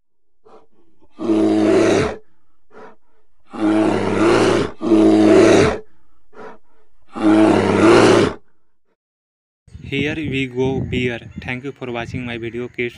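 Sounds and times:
bear roaring: 0:00.4 - 0:08.5.

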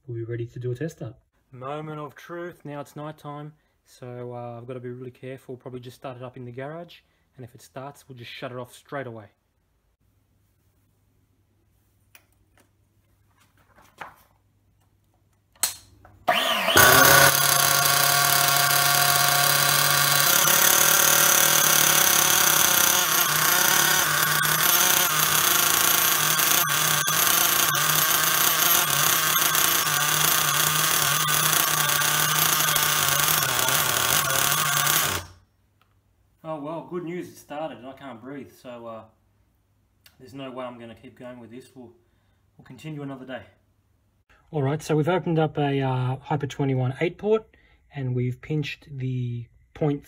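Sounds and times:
model engine running loud: 0:16.3 - 0:35.3.

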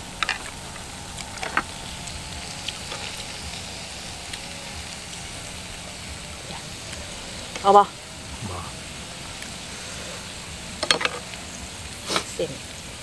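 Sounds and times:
meat and broth sizzling: 0:00.0 - 0:13.0.

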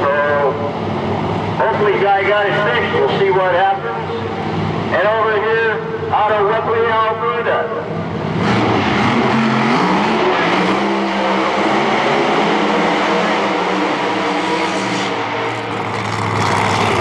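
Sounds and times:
drag car engines revving: 0:00.0 - 0:17.0
tyres spinning on pavement: 0:15.4 - 0:17.0.

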